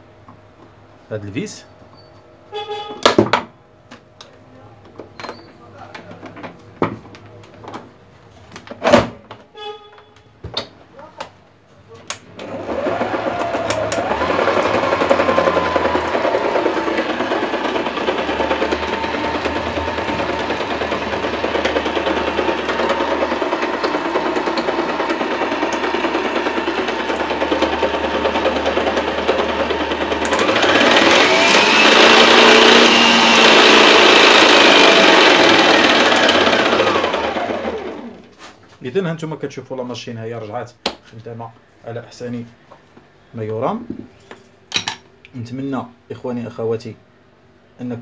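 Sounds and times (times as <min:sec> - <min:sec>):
stand mixer motor whining: 0:12.4 - 0:38.3.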